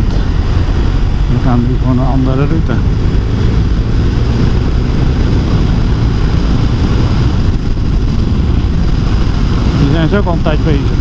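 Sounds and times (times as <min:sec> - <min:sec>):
motorcycle engine running: 0:00.0 - 0:11.0
wind noise on microphone: 0:00.0 - 0:11.0.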